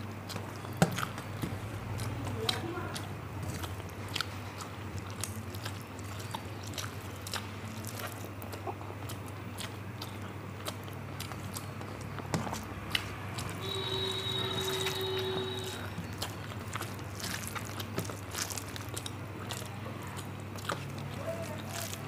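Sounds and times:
low steady hum: 0:00.0 - 0:22.0
person chewing food: 0:00.0 - 0:22.0
wet mouth clicks: 0:01.9 - 0:13.7.

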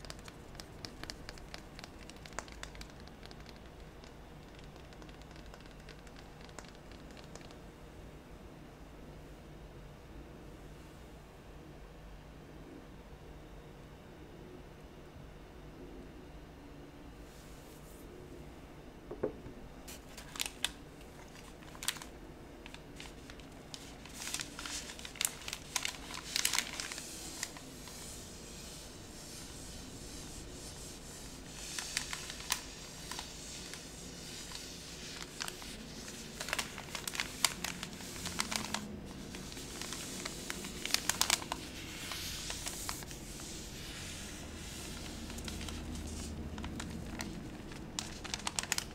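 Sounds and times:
paper crinkling: 0:00.0 - 0:07.6, 0:19.9 - 0:48.9.

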